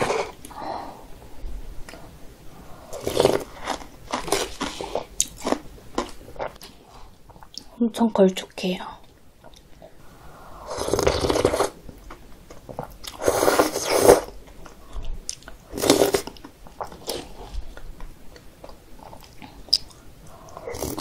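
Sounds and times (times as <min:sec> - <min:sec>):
soft chewing: 0:02.9 - 0:07.8, 0:11.0 - 0:21.0
wet noodle slurping: 0:10.6 - 0:11.8, 0:13.0 - 0:14.3, 0:20.5 - 0:21.0.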